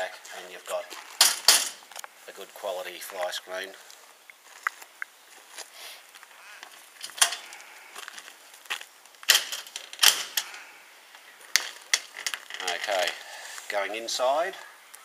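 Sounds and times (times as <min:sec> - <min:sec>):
mesh screen door clattering open: 0:01.2 - 0:01.8, 0:07.0 - 0:07.5, 0:09.3 - 0:10.6, 0:11.5 - 0:13.2.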